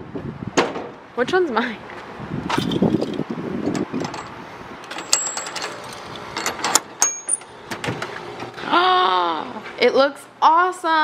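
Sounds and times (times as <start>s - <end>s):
keys jingling: 2.5s - 7.5s
high metallic tings: 7.0s - 7.5s.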